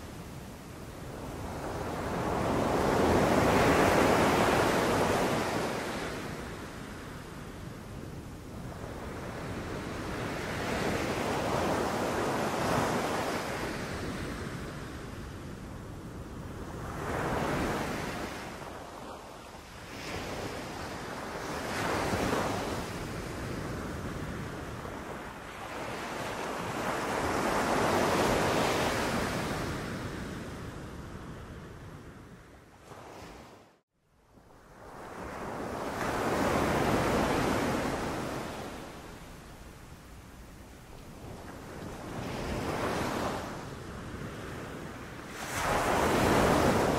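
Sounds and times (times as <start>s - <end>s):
sea waves breaking on beach: 44.3s - 46.9s.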